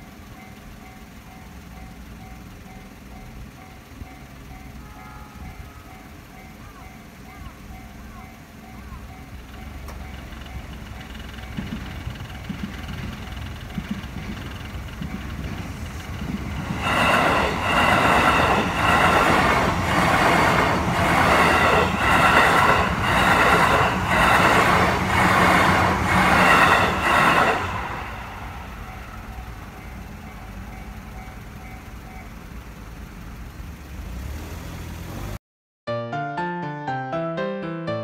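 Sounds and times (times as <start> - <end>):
crossing warning bell: 0.0 - 33.6
electric train passing: 0.0 - 35.4
wheels clattering over rail joints: 6.2 - 32.6.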